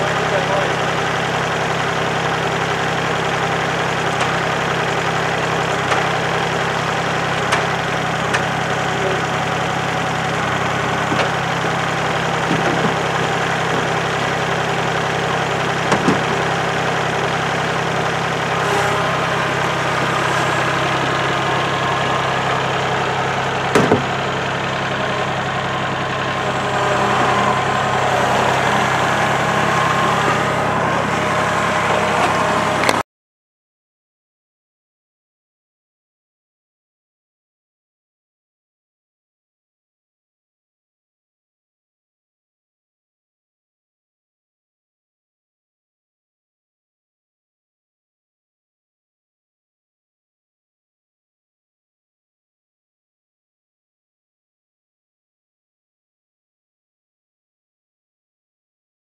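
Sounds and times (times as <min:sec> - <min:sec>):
tractor diesel engine idling: 0:00.0 - 0:33.0
short clunks: 0:15.9 - 0:16.4, 0:23.7 - 0:24.2.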